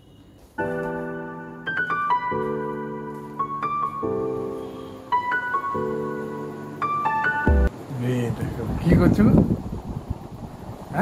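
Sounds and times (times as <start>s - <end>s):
gentle piano music: 0.0s - 7.9s.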